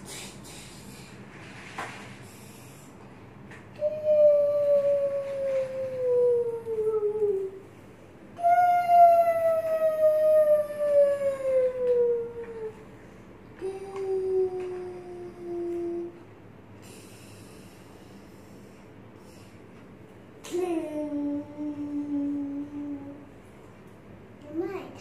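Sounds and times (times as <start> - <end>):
child humming: 3.8 - 7.7, 8.4 - 12.9, 13.6 - 16.2, 20.5 - 23.3.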